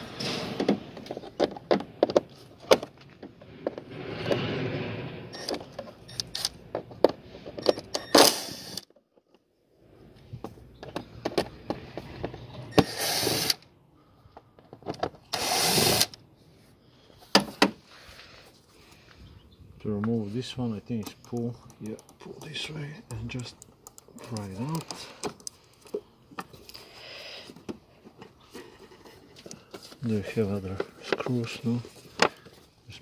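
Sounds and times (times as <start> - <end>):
tool and housing clicks and knocks: 0.6 - 3.8, 10.4 - 12.8.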